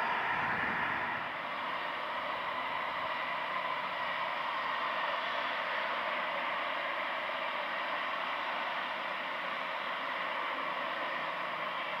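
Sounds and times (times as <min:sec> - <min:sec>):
jet engines roaring: 0:00.0 - 0:02.6.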